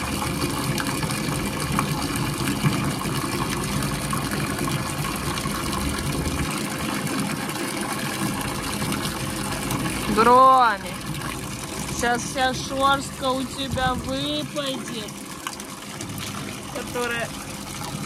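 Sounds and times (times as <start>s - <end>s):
water pouring into a pool: 0.0s - 18.0s.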